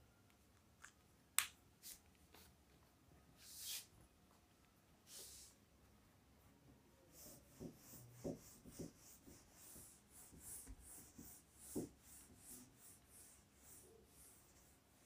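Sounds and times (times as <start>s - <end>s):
duster wiping a whiteboard: 7.1s - 15.0s.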